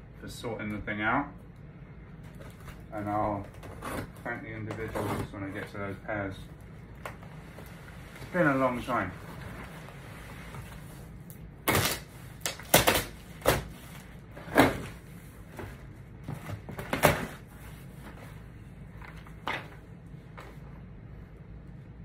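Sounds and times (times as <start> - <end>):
packing tape ripping: 11.6 - 14.0.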